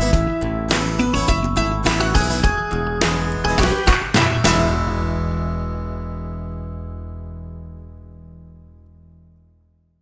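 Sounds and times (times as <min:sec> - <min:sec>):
music final held chord: 0:01.6 - 0:09.2.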